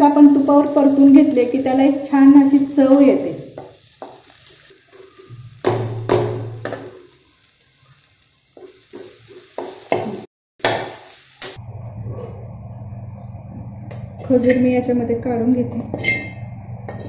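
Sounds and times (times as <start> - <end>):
light frying sizzle: 0.0 - 11.6.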